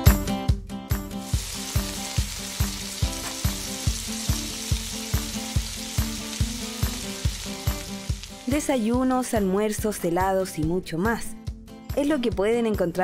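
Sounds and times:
background music with a beat: 0.0 - 13.0
onions sizzling on a griddle: 1.2 - 8.8.

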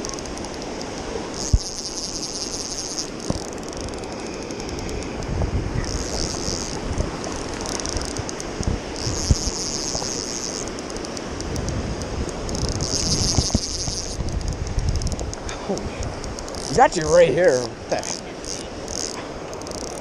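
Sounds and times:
fishing reel ratchet clicking: 0.0 - 17.2, 18.0 - 20.0
wind buffeting microphone: 3.2 - 19.7
river rapids rushing: 16.4 - 19.8.

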